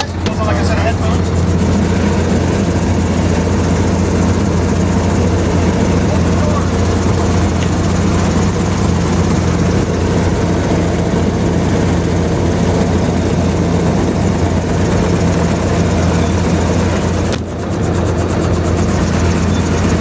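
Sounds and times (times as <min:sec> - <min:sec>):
helicopter engine and rotor idling: 0:00.0 - 0:20.0.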